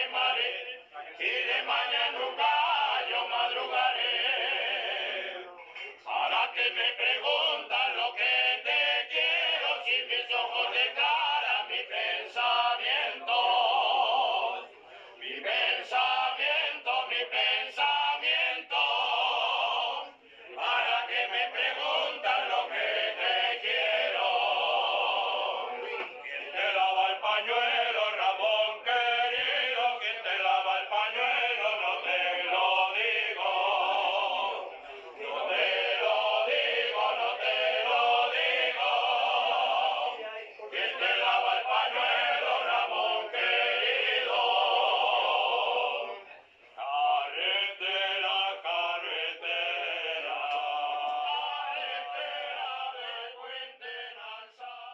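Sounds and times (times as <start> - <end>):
male choir singing: 0.0 - 46.2, 46.8 - 54.9.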